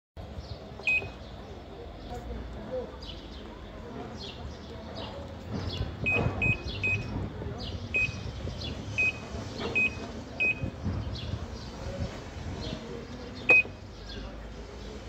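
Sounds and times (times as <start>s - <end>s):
short high beeps: 6.1s - 7.1s, 9.8s - 10.7s, 13.5s - 13.8s
louder beep: 13.5s - 13.7s.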